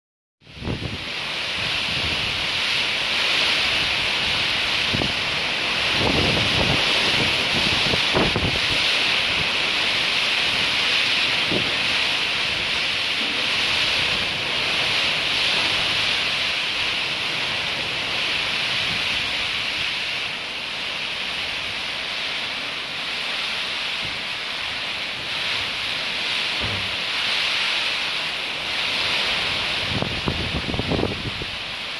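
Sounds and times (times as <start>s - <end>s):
wind buffeting microphone: 0.4s - 20.2s, 25.0s - 27.4s, 28.6s - 31.9s
pouring rain: 0.4s - 31.9s
strong wind through trees: 0.4s - 31.9s.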